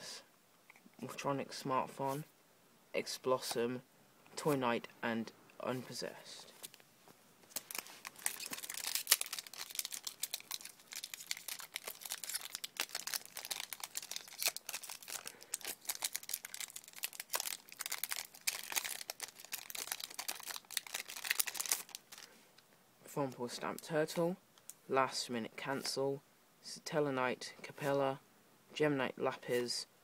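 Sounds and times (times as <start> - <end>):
foil wrapper tearing and crinkling: 7.5 - 22.3.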